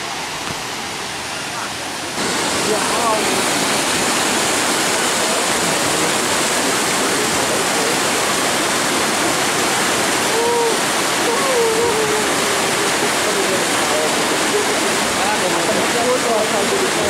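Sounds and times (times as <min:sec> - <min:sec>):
mountain stream and waterfall rushing: 0:00.0 - 0:17.0.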